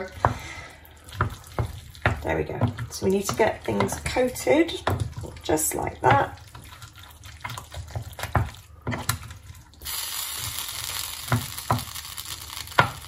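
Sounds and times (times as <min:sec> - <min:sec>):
spoon stirring thick filling: 0:00.0 - 0:09.8
steady hiss: 0:09.8 - 0:13.0.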